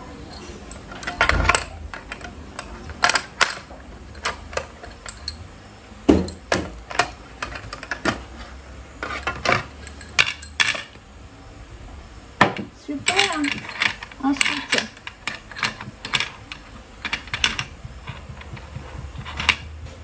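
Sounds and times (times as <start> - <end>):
plastic blocks clicking on a table: 0.7 - 5.4, 12.5 - 19.8.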